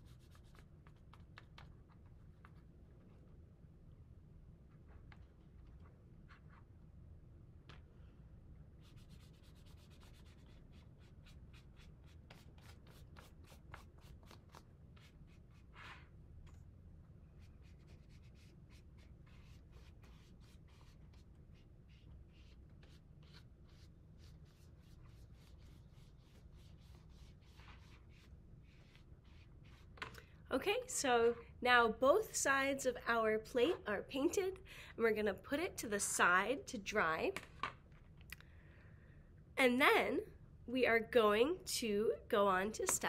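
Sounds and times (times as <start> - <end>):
paintbrush strokes on paper plate: 17.3 - 30.0.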